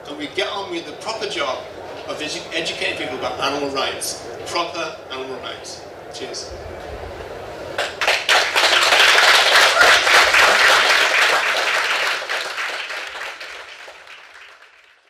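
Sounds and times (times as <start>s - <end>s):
audience applause: 7.8s - 15.0s.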